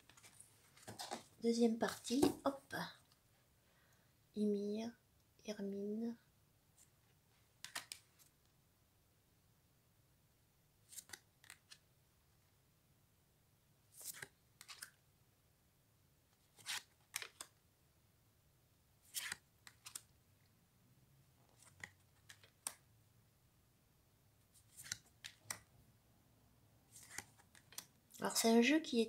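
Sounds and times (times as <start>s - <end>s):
cards flipped by hand: 0.0s - 1.3s, 7.6s - 8.3s, 10.8s - 11.8s, 13.9s - 15.0s, 16.4s - 17.6s, 19.0s - 20.1s, 21.5s - 22.8s, 24.6s - 25.7s, 26.9s - 28.0s
card clicks: 7.6s - 8.0s.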